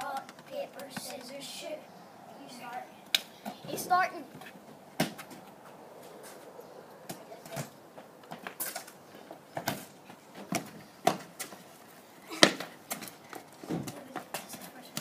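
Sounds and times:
trainers scuffing paving: 2.5 - 15.0
feet kicking football: 4.4 - 5.6, 9.3 - 11.7, 12.3 - 15.0.

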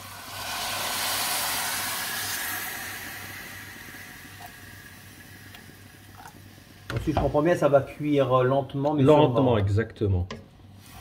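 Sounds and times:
water hissing in hot pan: 0.0 - 8.6, 10.7 - 11.0
water pouring from jug: 0.1 - 7.4.

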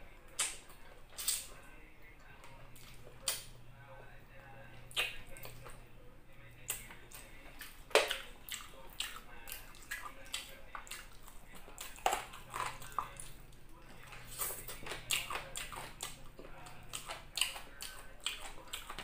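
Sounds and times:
person chewing wetly: 0.3 - 5.8, 6.5 - 19.0
sharp wet smacks: 0.4 - 1.5, 4.9 - 5.6, 7.6 - 11.1.

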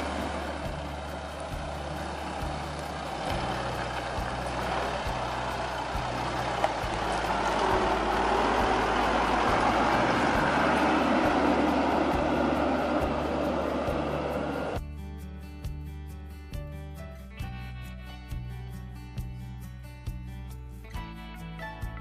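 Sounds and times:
diesel engine crawling over rock: 0.0 - 14.8
bass-heavy music track: 0.0 - 22.0.

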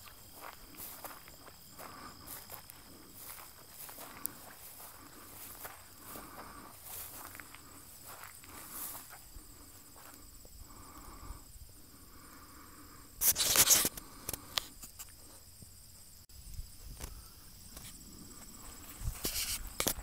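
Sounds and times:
footsteps on gravel: 0.0 - 10.2
scuffing crunch on gravel: 0.0 - 10.2.

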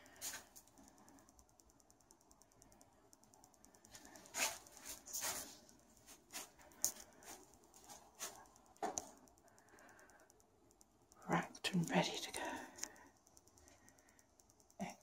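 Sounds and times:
footsteps and rustling: 3.9 - 9.0.

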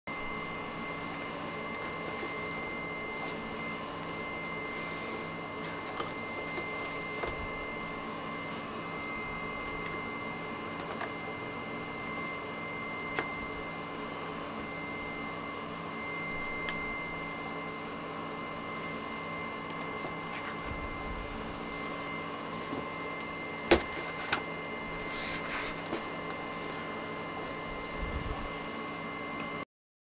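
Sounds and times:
steady electrical whine: 0.1 - 29.6
book pages turning: 1.0 - 8.2, 9.6 - 10.1, 13.0 - 14.1, 19.6 - 20.8, 22.5 - 26.9.

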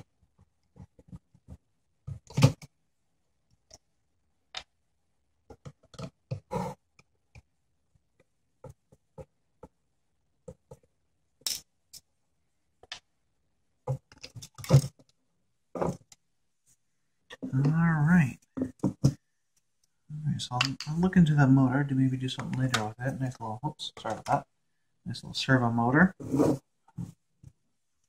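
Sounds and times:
plastic and metal parts clattering: 13.9 - 15.2.

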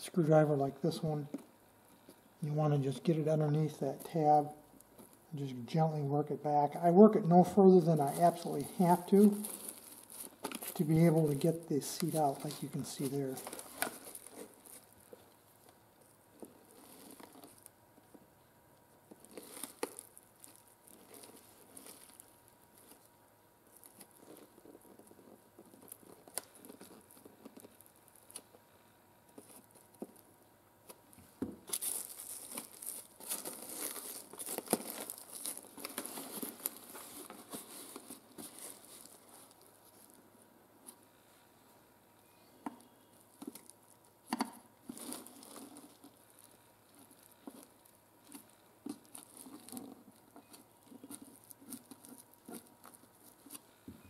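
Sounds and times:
seat cover rustling and crinkling: 8.0 - 15.6, 16.4 - 17.7, 19.1 - 23.1, 31.6 - 40.2.

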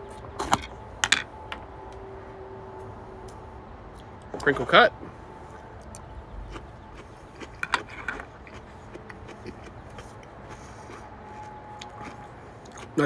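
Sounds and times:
quiet chewing: 2.8 - 13.0
pickle crunching: 5.4 - 13.0.

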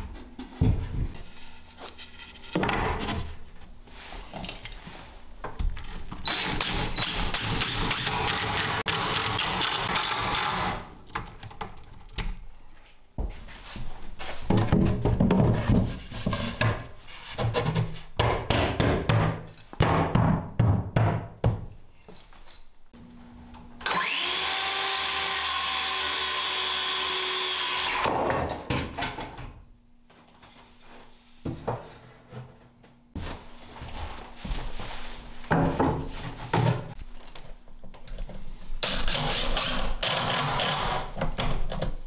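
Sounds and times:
circular saw cutting wood: 23.8 - 28.1.

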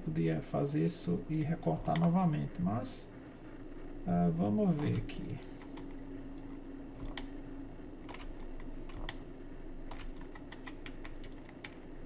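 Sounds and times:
keyboard and mouse clicking: 4.8 - 7.3, 8.0 - 9.2, 9.9 - 11.8.

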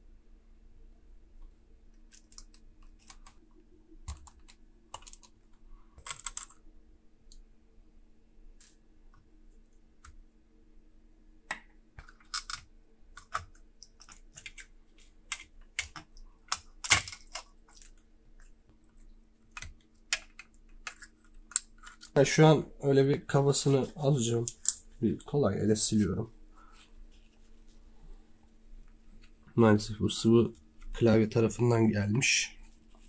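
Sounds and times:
faint steady hum: 0.0 - 33.0
small tools clicking on laptop: 1.9 - 6.6.

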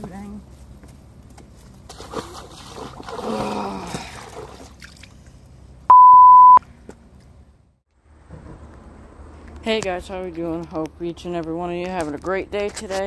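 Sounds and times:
high beep tone: 5.9 - 6.6.

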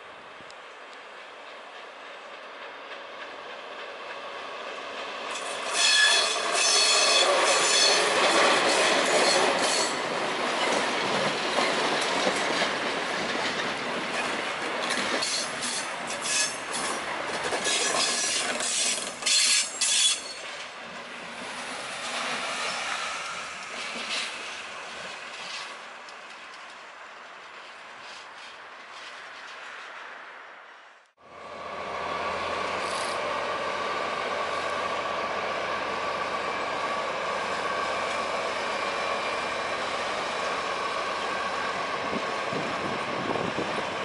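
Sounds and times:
diesel locomotive passing: 0.0 - 44.0
train wheels squealing: 5.3 - 12.3, 14.2 - 20.7, 21.5 - 24.6.

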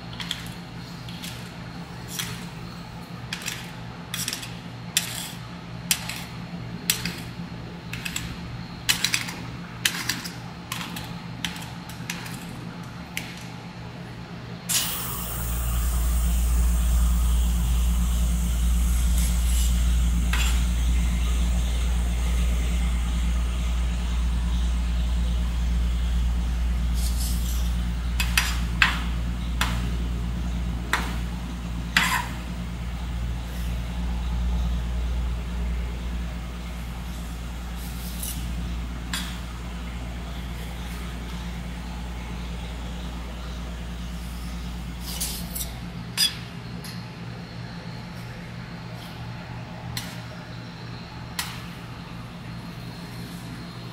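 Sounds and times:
low rumble with hiss: 13.6 - 46.2.

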